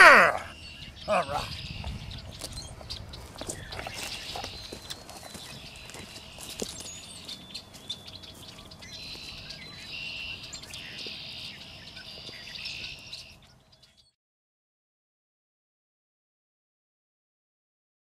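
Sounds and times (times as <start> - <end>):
songbirds singing and chirping: 0.0 - 14.2
footsteps crunching through stubble: 1.4 - 13.8.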